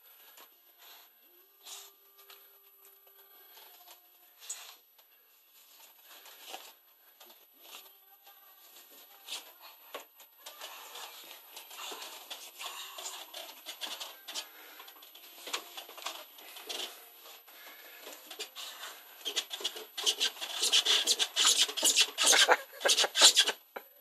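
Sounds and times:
rope rasping against wood: 19.2 - 23.6.

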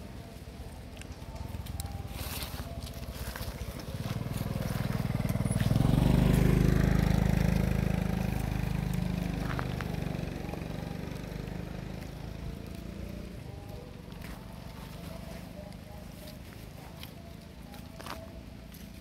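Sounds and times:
motorbike passing: 0.0 - 19.0.

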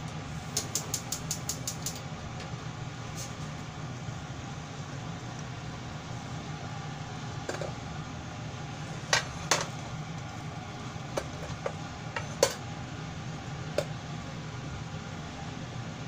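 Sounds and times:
ventilation fan humming: 0.0 - 16.0
sharp clicks and taps: 0.6 - 2.0.

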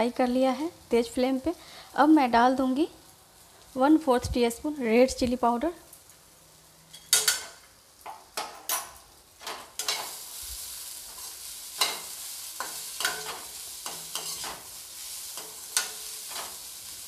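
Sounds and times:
oil sizzling: 0.0 - 17.0
spatula scraping metal pan: 11.2 - 14.7.

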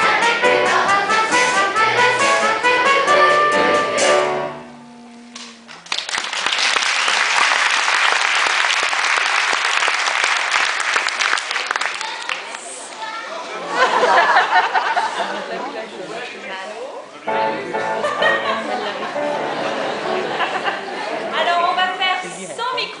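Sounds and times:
children's choir singing: 0.0 - 5.3
audience applause: 5.4 - 13.2.

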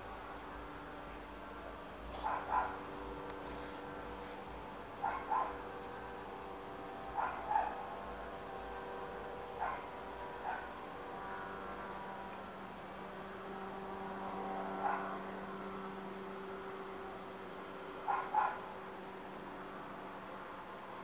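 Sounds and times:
distant helicopter drone: 0.0 - 21.0
dog barking: 2.1 - 2.8, 5.0 - 5.6, 7.2 - 7.8, 9.6 - 10.7, 14.8 - 15.2, 18.1 - 18.6.

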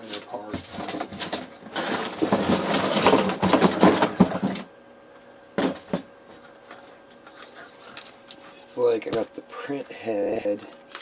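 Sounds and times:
printer parts rattling and clattering: 0.1 - 4.7.

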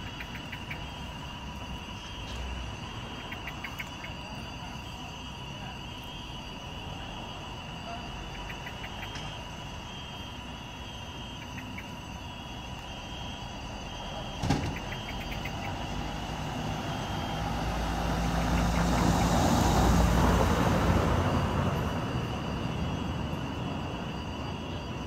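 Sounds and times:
minivan driving past: 13.2 - 25.0.

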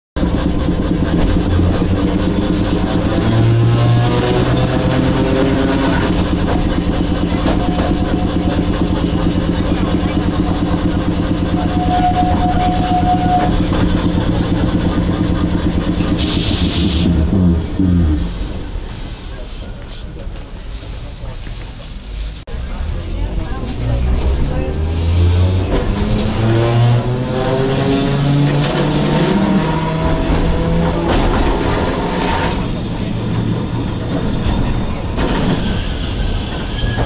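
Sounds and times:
streetcar motor and wheel noise: 0.2 - 37.0.

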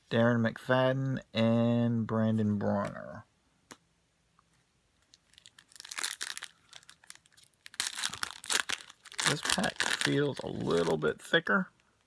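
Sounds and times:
wrapper crinkling and tearing: 5.0 - 11.2.

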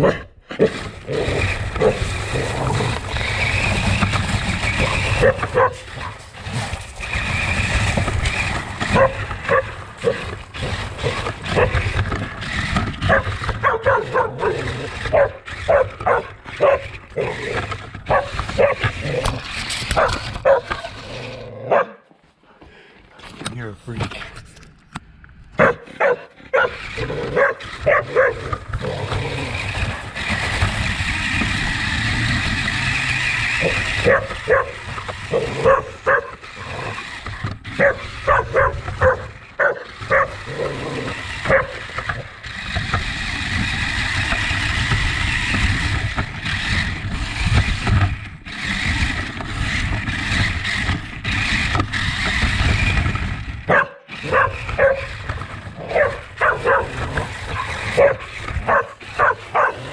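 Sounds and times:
toy car motor running: 0.6 - 21.5, 25.6 - 59.9
dog barking and yipping: 1.8 - 3.8, 4.6 - 12.0, 13.0 - 17.4, 18.0 - 19.0, 19.9 - 20.9, 21.6 - 22.0, 25.6 - 28.9, 33.2 - 36.9, 37.7 - 40.5, 41.2 - 42.2, 53.7 - 55.2, 55.8 - 59.9.

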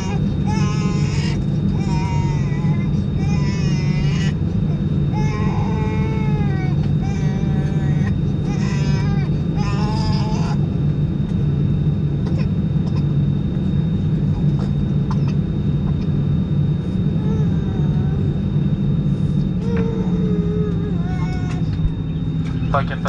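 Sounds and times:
high engine whine: 0.0 - 23.0
jet engine low drone: 0.0 - 23.0
people speaking: 22.5 - 23.0.

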